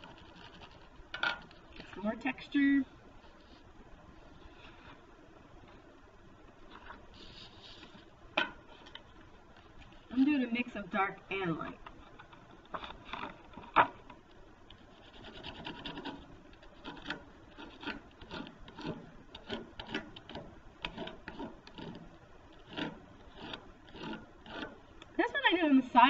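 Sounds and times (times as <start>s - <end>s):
crayon rasping over paper: 7.1s - 8.1s, 14.9s - 20.2s, 20.8s - 24.8s.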